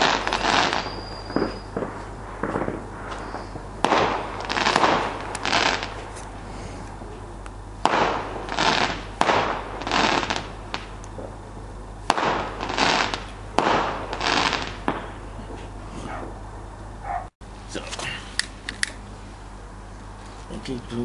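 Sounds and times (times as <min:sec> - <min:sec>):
fireworks bangs echoing: 0:00.0 - 0:06.2, 0:07.8 - 0:16.4.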